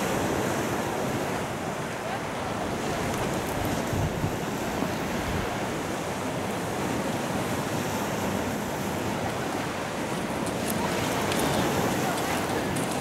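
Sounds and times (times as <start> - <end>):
waves washing onto beach: 0.0 - 13.0.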